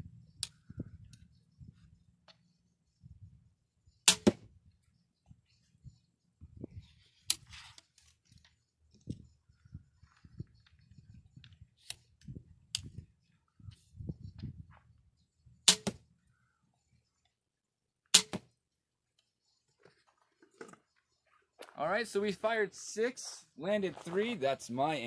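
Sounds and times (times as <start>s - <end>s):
crossbow shot cracks: 4.1s - 4.5s, 15.7s - 16.0s, 18.2s - 18.5s
crossbow being handled and reloaded: 6.8s - 9.2s.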